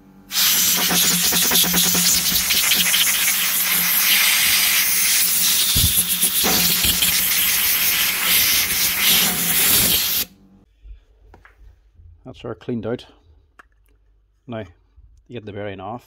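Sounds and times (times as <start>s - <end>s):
compressed air hissing: 0.3s - 10.3s.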